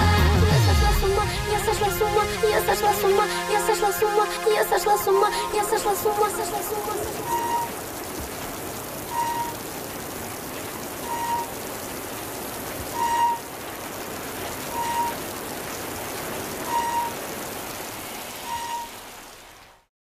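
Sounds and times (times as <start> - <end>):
steady rain-like hiss: 0.0 - 19.9
short electronic beep: 18.4 - 19.0.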